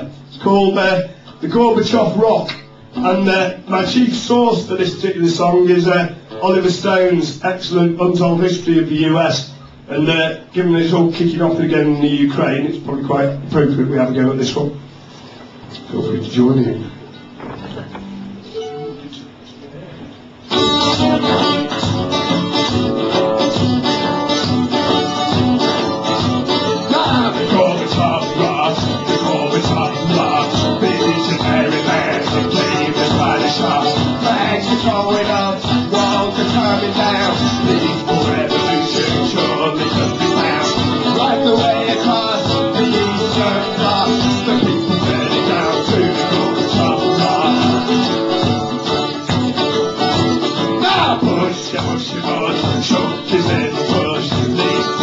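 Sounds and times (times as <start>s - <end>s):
acoustic guitar strumming: 0.0s - 55.0s
plucked string instrument: 20.5s - 55.0s
man singing into a microphone: 25.7s - 48.2s, 50.8s - 55.0s.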